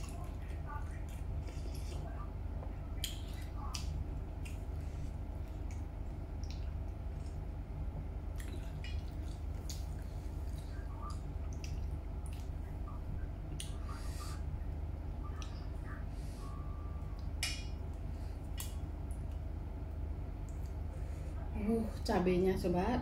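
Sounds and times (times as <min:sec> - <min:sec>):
low hum: 0:00.0 - 0:23.0
wet chewing and lip smacks: 0:03.0 - 0:07.4, 0:08.3 - 0:12.7, 0:13.5 - 0:14.2, 0:17.1 - 0:19.5, 0:20.4 - 0:20.8.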